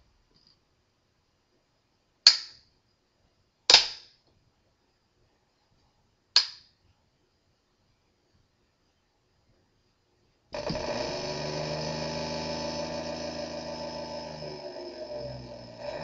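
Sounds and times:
sharp snaps: 2.2 - 2.7, 3.7 - 4.2, 6.3 - 6.8.

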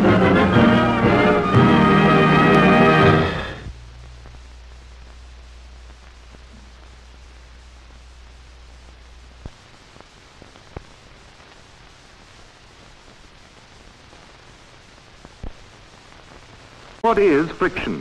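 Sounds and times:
brass orchestral chord: 0.0 - 3.7
low hum: 0.0 - 10.2
film soundtrack hiss: 0.0 - 18.0.

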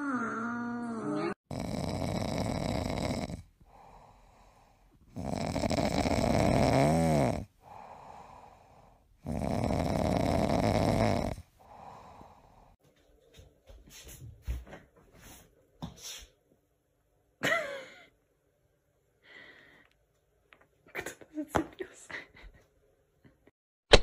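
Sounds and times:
cat snoring: 1.5 - 12.8.

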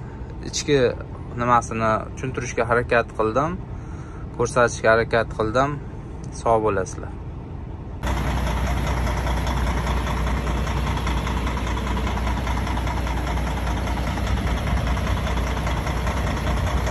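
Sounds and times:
diesel truck engine idling: 7.3 - 16.9.

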